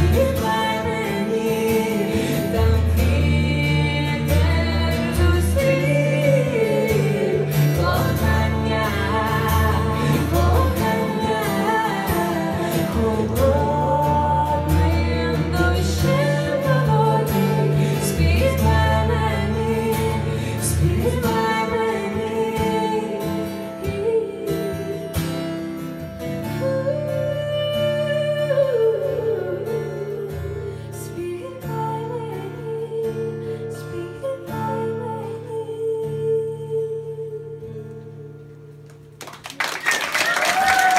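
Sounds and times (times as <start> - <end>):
man and woman singing: 0.0 - 25.2
acoustic guitar: 0.0 - 40.9.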